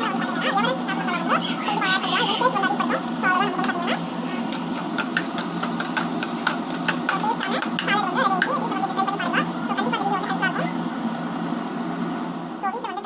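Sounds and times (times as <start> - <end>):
vegetables sizzling: 0.0 - 13.0
spatula scraping pan: 2.0 - 9.4.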